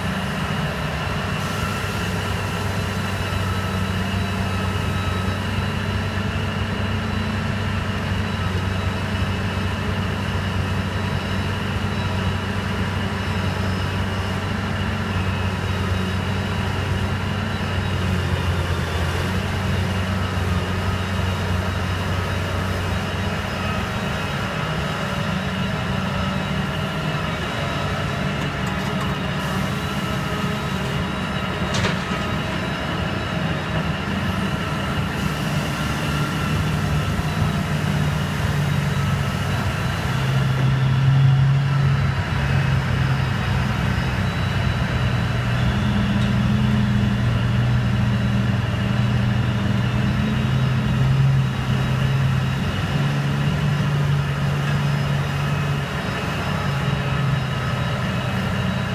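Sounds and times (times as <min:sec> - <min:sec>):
heavy diesel engines droning: 0:00.0 - 0:58.9
hydraulic whining: 0:23.6 - 0:58.8.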